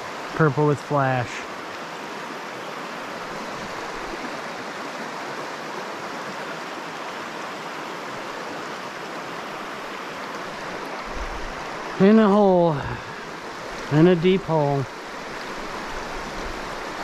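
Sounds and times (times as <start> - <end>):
water rushing over rocks: 0.0 - 17.0.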